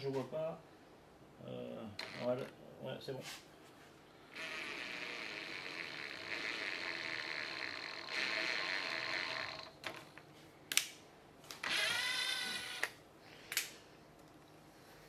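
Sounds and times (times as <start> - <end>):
drill press motor whining: 4.3 - 9.8, 11.6 - 12.9.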